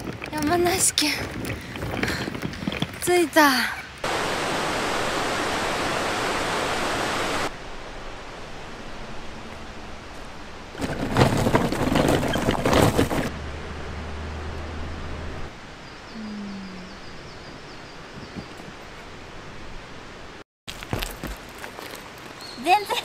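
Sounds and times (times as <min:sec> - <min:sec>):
outdoor ambience: 0:00.0 - 0:23.0
steady rushing noise: 0:04.0 - 0:12.0
loud rustling and knocking: 0:10.8 - 0:13.3.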